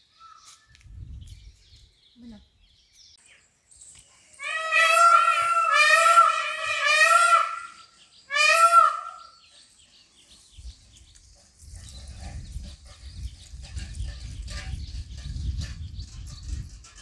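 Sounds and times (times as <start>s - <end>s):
high wavering animal cry: 4.4s - 9.3s.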